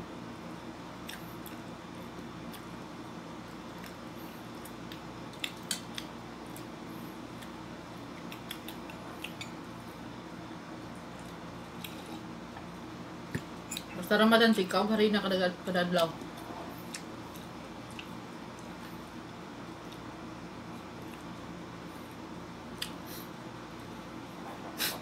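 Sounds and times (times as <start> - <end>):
low room hum: 0.0 - 25.0
person chewing bread: 1.0 - 2.8, 3.4 - 9.8, 10.9 - 13.9, 16.2 - 23.1
mouth clicks and smacks: 4.6 - 6.6, 8.2 - 9.6, 13.3 - 14.0.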